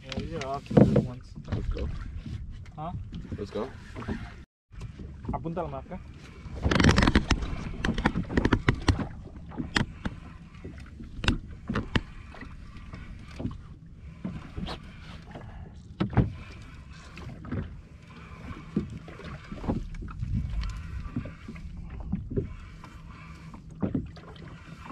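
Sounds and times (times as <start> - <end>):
low rumble of hull on water: 0.0 - 24.9
gear knocking against boat: 6.4 - 24.9.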